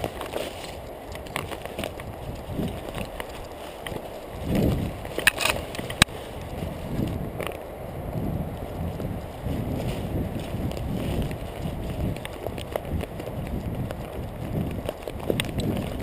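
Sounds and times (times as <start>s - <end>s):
brushing through undergrowth: 0.0s - 16.0s
running footfalls: 0.0s - 16.0s.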